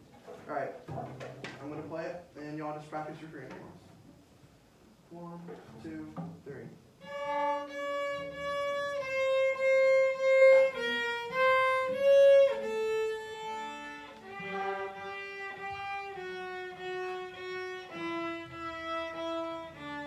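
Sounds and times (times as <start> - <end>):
string ensemble bowing a melody: 7.0 - 20.0.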